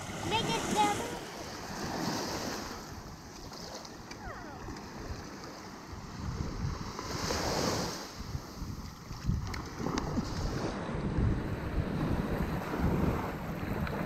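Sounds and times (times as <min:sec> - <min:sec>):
small waves washing on sand: 0:00.0 - 0:14.0
wind buffeting the microphone: 0:04.0 - 0:14.0.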